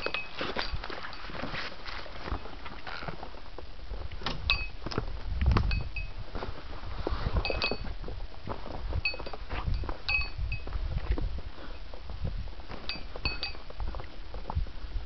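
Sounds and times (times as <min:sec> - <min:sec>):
small bell tinkling: 0:04.5 - 0:04.8, 0:09.0 - 0:10.7, 0:12.9 - 0:13.6.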